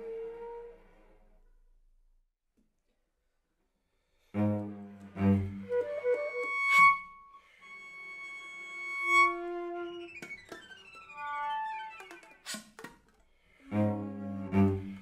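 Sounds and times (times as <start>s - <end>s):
chamber music for voice flute and cello: 0.0s - 1.3s, 4.4s - 12.4s, 13.5s - 15.0s.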